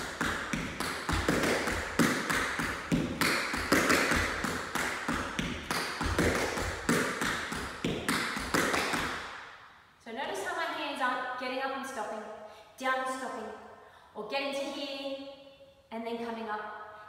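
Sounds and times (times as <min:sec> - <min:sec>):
tap shoes striking hard floor: 0:00.0 - 0:09.4.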